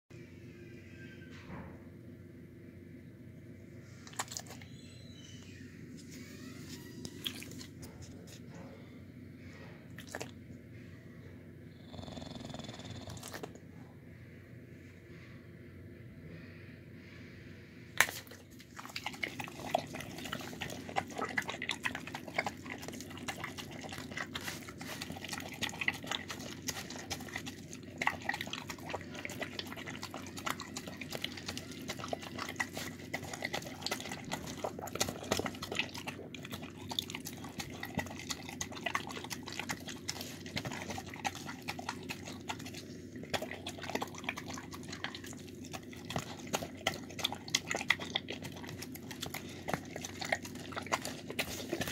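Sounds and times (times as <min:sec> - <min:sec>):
dog eating wet food: 0:04.0 - 0:04.7, 0:07.2 - 0:08.5, 0:09.9 - 0:10.4, 0:12.2 - 0:13.6, 0:18.0 - 0:51.9.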